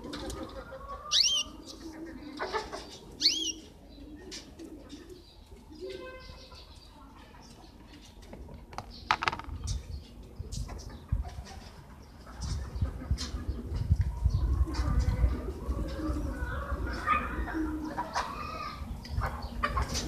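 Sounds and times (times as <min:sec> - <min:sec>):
finches chirping: 0:01.1 - 0:01.5, 0:03.2 - 0:03.6
loud rising bird calls: 0:01.1 - 0:01.6.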